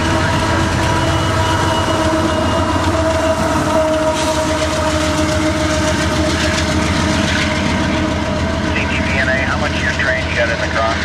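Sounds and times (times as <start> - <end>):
multi-tone train air horn: 0.0 - 6.5
diesel locomotive engine rumble: 0.0 - 11.0
train wheels on rails: 0.0 - 11.0.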